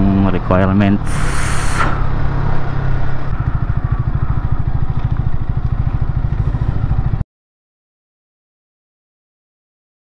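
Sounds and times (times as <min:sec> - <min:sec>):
motorcycle engine running at low revs: 0:00.0 - 0:07.2.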